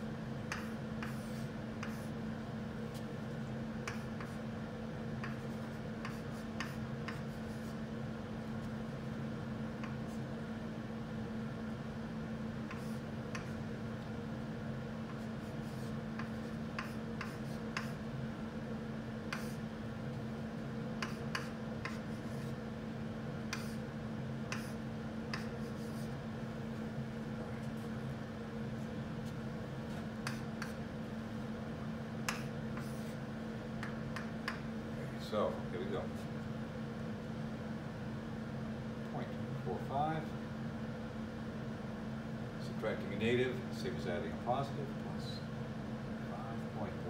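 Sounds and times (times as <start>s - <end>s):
steady low hum: 0.0s - 47.0s
chalk tapping on chalkboard: 0.5s - 2.1s, 3.8s - 4.4s, 5.2s - 7.8s, 12.7s - 13.6s, 15.1s - 18.0s, 19.3s - 19.6s, 21.0s - 22.5s, 23.5s - 23.8s, 24.5s - 26.1s, 30.2s - 30.8s, 32.2s - 33.2s, 33.8s - 34.6s.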